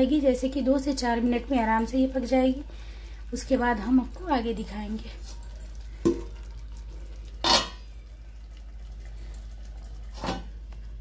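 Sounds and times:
curry simmering in a pan: 0.0 - 11.0
cookware clink: 7.4 - 7.9.

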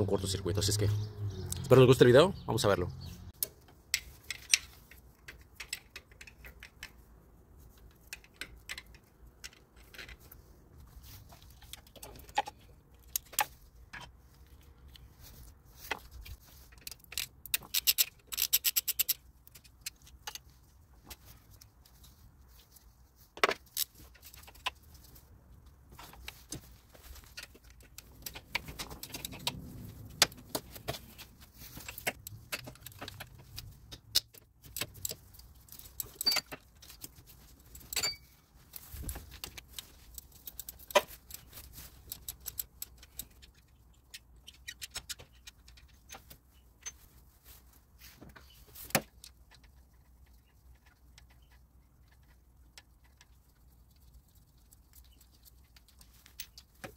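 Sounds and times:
metal tools clinking: 35.8 - 36.6, 37.8 - 38.4.

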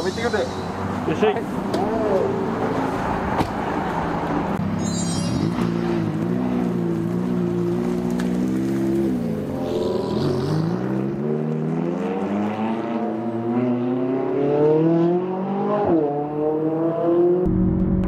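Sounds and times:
sports car accelerating past: 5.3 - 18.0.

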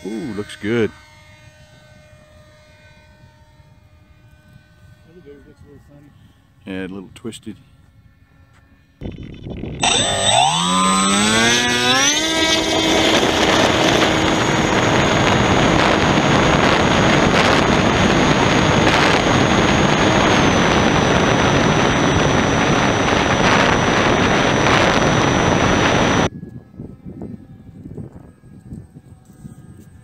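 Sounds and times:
electric motor and propeller: 0.0 - 6.8, 7.7 - 30.0
wind rushing over microphone: 7.7 - 30.0.

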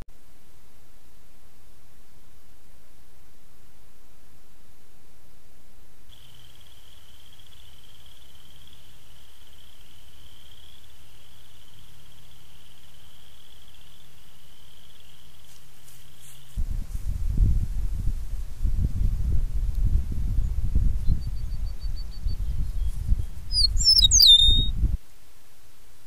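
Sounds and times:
high-pitched animal trill: 23.5 - 24.7.

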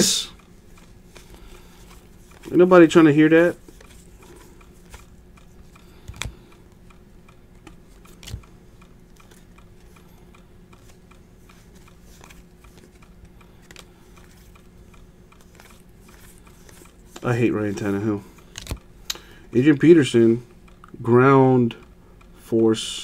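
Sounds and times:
trading cards clicking and snapping: 0.7 - 6.9, 7.5 - 19.3.

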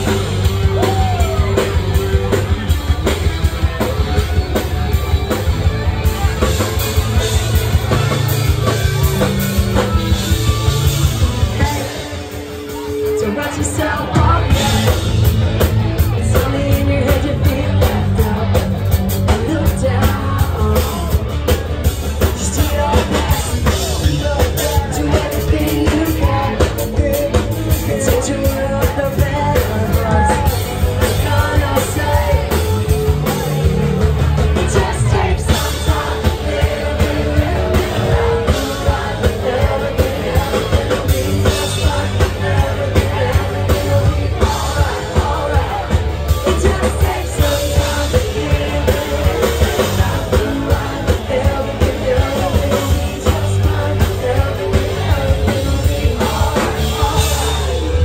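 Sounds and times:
drums: 0.0 - 58.0
electric guitar: 0.0 - 58.0
woman singing: 11.5 - 15.1, 16.2 - 21.2, 22.3 - 32.8.

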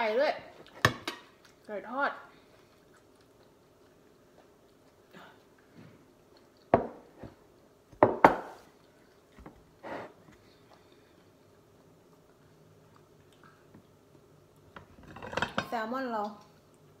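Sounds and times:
plate knocking on table: 8.0 - 8.6.

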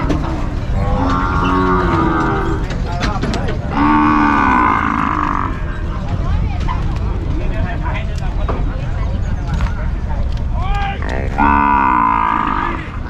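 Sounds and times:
cattle mooing: 0.7 - 2.8, 3.7 - 5.7, 11.0 - 13.0.

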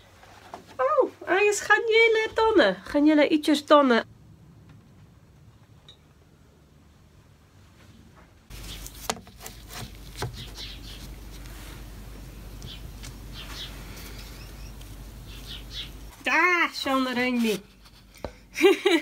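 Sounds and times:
steady low hum: 4.0 - 16.2
light scrapes and rustles: 16.2 - 18.3.

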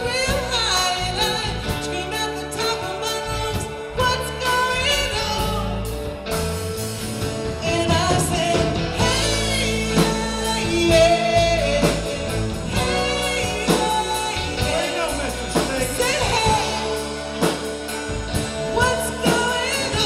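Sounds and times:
guitar: 0.0 - 20.0
lead singer: 0.0 - 20.0
rock band playing: 0.0 - 20.0
steady drum beat: 5.4 - 20.0.

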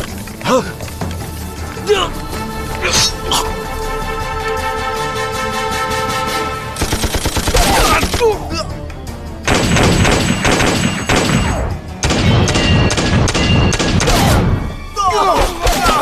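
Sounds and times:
dramatic music: 0.0 - 16.0
people shouting: 1.7 - 3.6, 7.5 - 8.8, 14.0 - 16.0
gunfire bursts: 6.8 - 8.2, 9.5 - 14.4.

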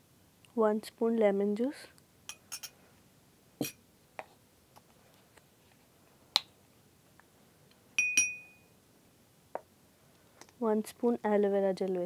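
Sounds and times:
spoon clinking on glass bowl: 2.3 - 2.7, 8.0 - 8.7
spoon and glass bowls clicking: 8.0 - 8.5.

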